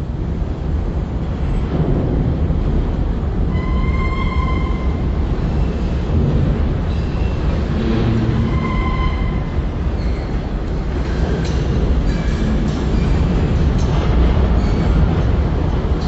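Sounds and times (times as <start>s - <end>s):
steel wheels rumbling on rail: 0.0s - 16.0s
high wheel squeal: 3.5s - 6.0s, 6.9s - 10.6s.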